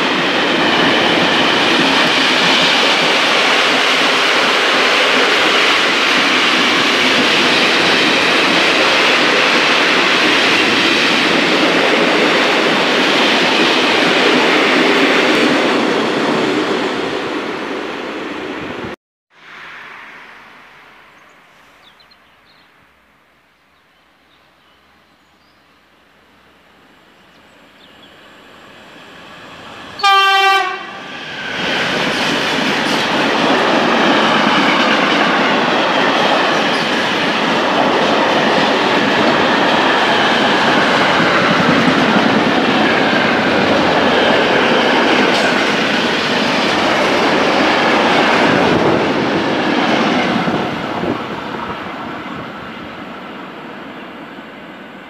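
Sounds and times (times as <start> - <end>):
freight train rumble and clatter: 0.0 - 19.0, 28.6 - 55.0
train horn blast: 30.0 - 31.1.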